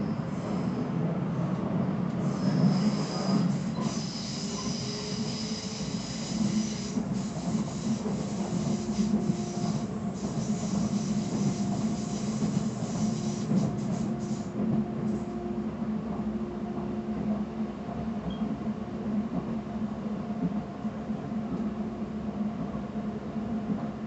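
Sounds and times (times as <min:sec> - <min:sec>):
train wheels rumbling on track: 0:00.0 - 0:24.0.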